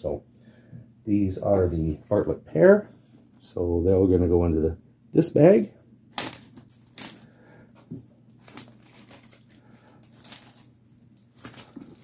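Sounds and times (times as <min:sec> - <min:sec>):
plastic bag crinkling: 0:06.2 - 0:07.4, 0:08.4 - 0:12.0.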